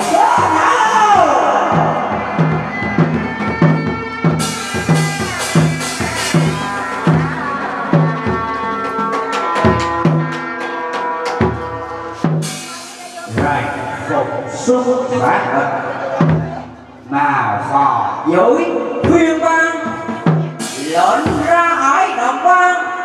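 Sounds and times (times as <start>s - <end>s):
shrill reed wind instrument: 0.0s - 15.1s
drum beating steady pulse: 0.0s - 17.0s, 18.8s - 22.0s.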